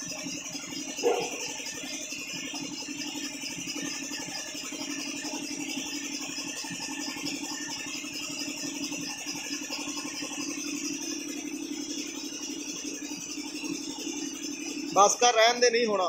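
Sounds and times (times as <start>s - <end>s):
machine hum with rattle: 0.0s - 16.0s.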